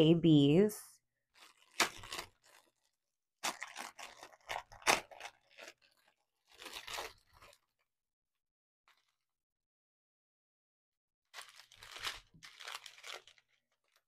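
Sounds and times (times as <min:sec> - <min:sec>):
plastic bags crinkling: 0:01.3 - 0:07.9, 0:08.9 - 0:09.2, 0:11.3 - 0:14.0.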